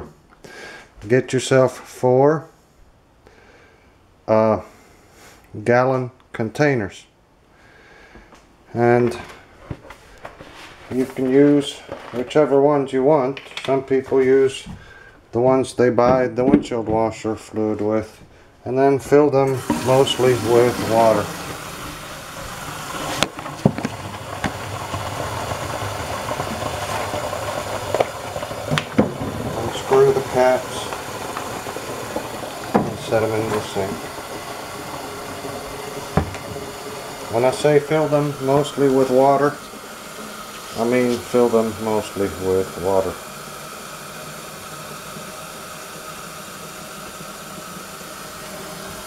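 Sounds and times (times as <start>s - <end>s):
faucet running into plastic jug: 19.4s - 49.0s.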